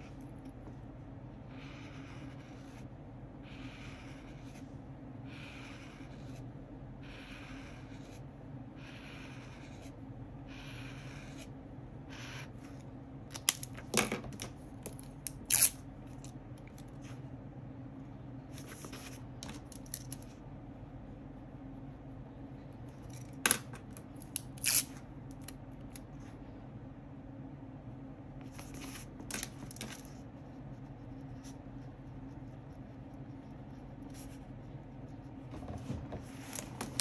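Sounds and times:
low steady hum: 0.0 - 37.0
pen scratching on paper: 1.4 - 12.8, 29.9 - 35.8.

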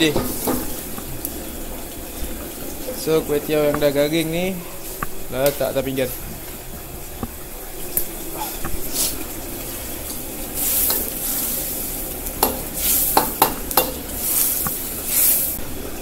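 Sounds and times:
sizzling hiss from pan: 0.0 - 15.7
utensils clinking and scraping: 10.6 - 15.6.

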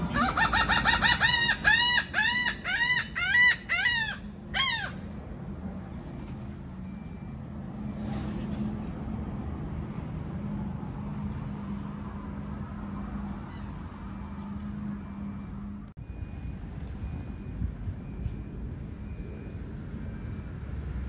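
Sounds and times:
seagull calling: 0.0 - 5.2.

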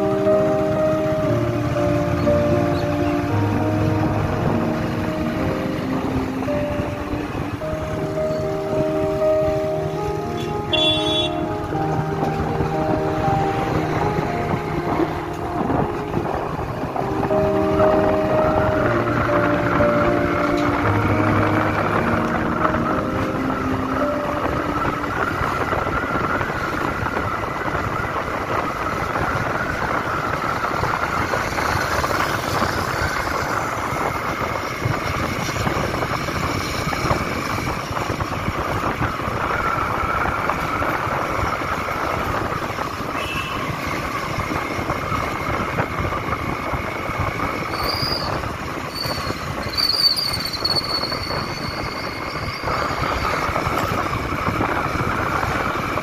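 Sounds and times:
road noise: 0.0 - 56.0
wind rush: 0.0 - 56.0.

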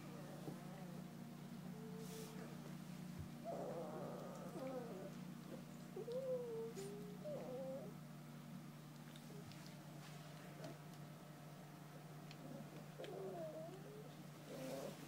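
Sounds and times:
steady low hum: 0.0 - 15.0
puppies whining: 3.3 - 8.0, 12.3 - 15.0.

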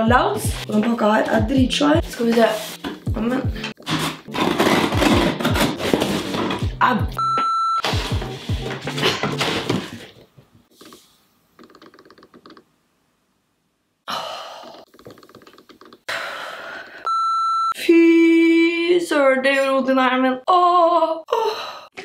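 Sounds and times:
short steady bleep: 17.1 - 17.7.

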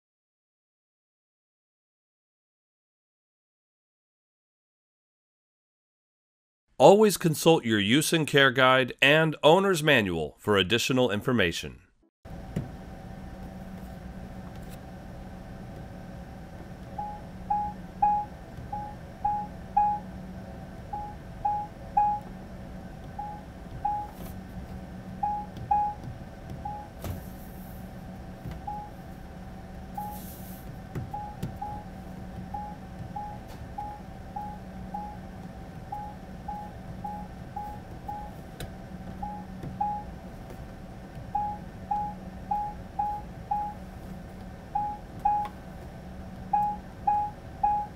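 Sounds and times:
steady low hum: 12.3 - 47.9.

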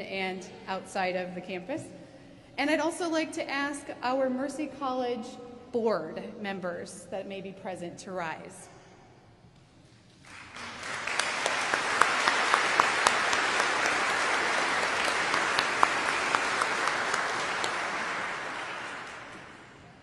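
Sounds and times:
audience applauding: 10.2 - 20.0.

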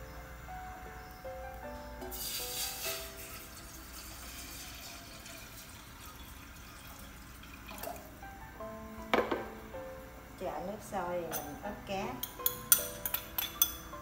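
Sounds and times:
water pouring into metal pot: 2.1 - 8.2.

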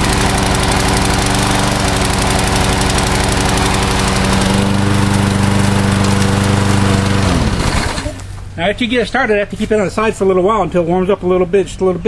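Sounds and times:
lawn mower engine running: 0.0 - 8.6.

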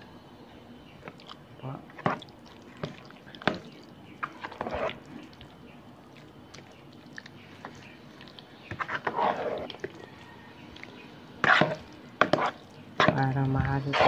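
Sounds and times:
wet squelching stirring: 0.9 - 14.0.

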